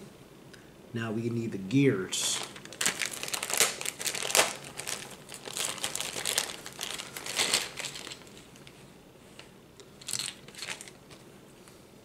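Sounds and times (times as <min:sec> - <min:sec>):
plastic bag crinkling: 0:02.2 - 0:08.7, 0:10.0 - 0:11.0.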